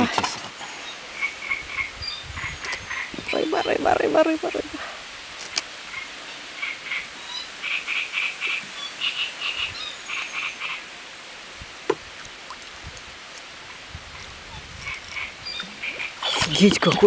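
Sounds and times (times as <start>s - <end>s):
frogs croaking: 0.8s - 4.8s, 5.6s - 11.0s, 13.6s - 17.0s.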